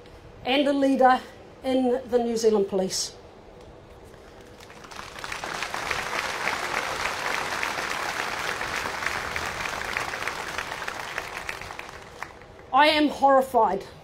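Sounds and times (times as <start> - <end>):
crowd applauding: 4.4 - 12.6.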